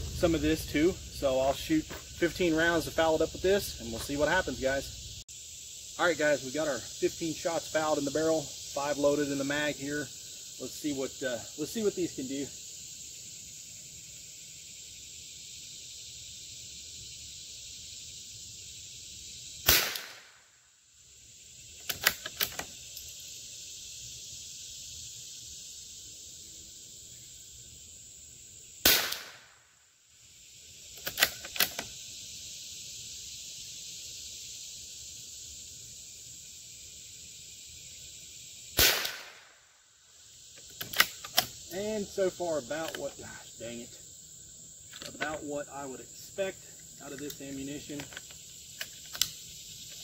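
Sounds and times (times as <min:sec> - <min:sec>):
rifle shots: 0:19.7 - 0:20.4, 0:28.8 - 0:29.5, 0:38.8 - 0:39.5.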